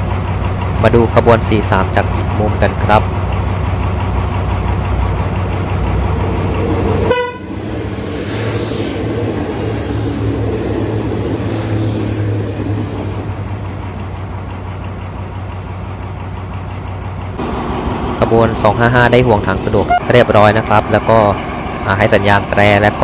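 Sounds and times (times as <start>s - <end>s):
diesel railcar rolling past: 0.0s - 23.0s
diesel train engines humming: 0.0s - 23.0s
train horn toot: 7.1s - 7.6s, 19.8s - 20.2s.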